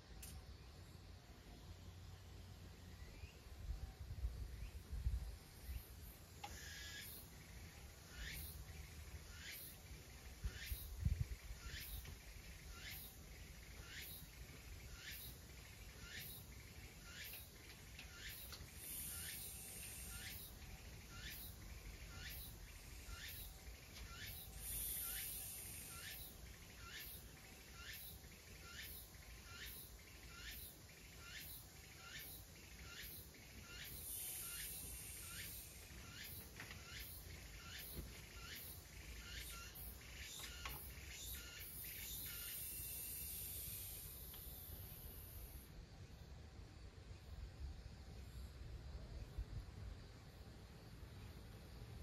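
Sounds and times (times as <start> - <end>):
high insect trill: 5.4 - 46.2
small bird calling: 5.7 - 45.6.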